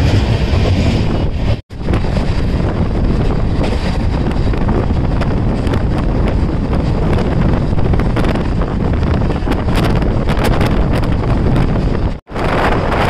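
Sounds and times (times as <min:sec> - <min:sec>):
train running rumble: 0:00.0 - 0:13.0
wind buffeting microphone: 0:00.0 - 0:13.0.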